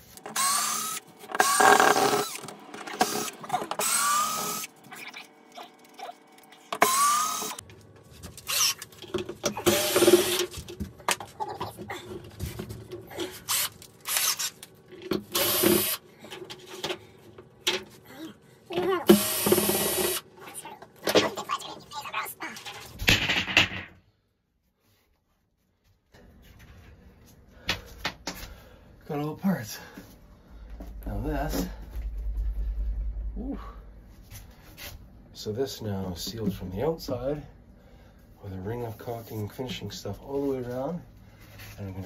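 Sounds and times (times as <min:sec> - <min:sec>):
cordless drill motor whine: 0:00.2 - 0:04.7, 0:06.7 - 0:07.6, 0:08.5 - 0:08.8, 0:09.6 - 0:10.4, 0:13.4 - 0:14.6, 0:15.3 - 0:16.0, 0:19.1 - 0:20.2.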